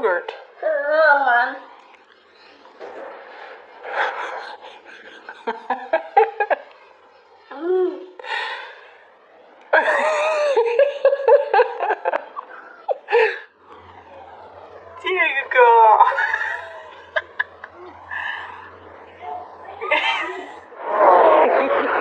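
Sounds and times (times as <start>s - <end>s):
laughter: 4.0s - 6.8s, 9.7s - 13.5s, 16.0s - 18.0s, 19.8s - 20.6s.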